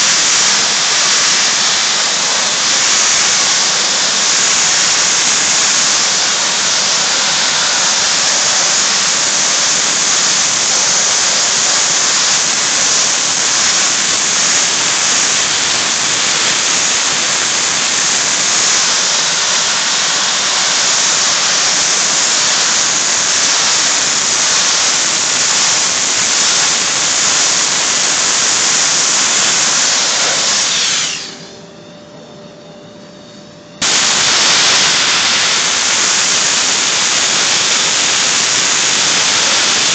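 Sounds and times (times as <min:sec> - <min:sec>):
soda blasting nozzle hiss: 0:00.0 - 0:31.5, 0:33.8 - 0:39.9.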